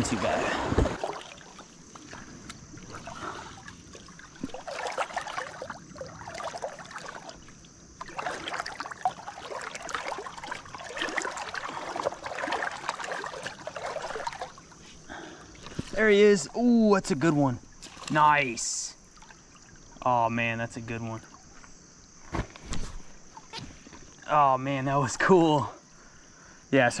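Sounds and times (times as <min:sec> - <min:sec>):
river water splashing and trickling: 0:00.0 - 0:22.2, 0:23.0 - 0:25.6.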